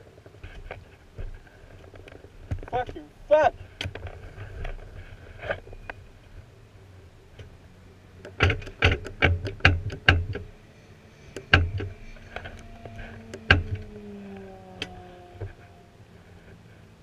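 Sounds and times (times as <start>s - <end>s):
sharp clicks and knocks: 8.2s - 10.6s, 11.3s - 15.6s
faint falling tones: 10.4s - 16.6s.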